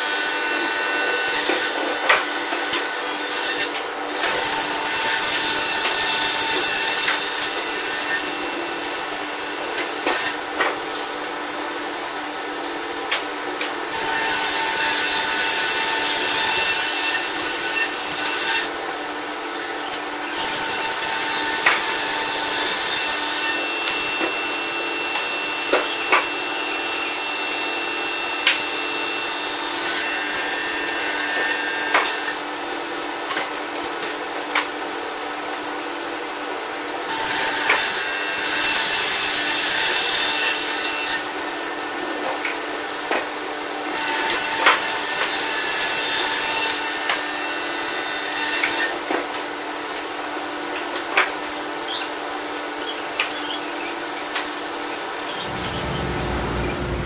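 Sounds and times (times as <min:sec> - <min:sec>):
sawmill sawing logs: 0:55.4 - 0:57.0
steady machine tones: 0:55.4 - 0:57.0.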